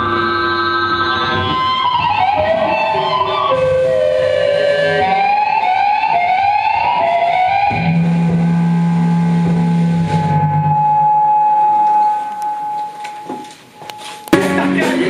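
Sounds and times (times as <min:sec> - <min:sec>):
guitar pitch slides: 0:00.0 - 0:13.3
distorted electric guitar: 0:00.0 - 0:15.0
held low bass note: 0:06.8 - 0:12.7.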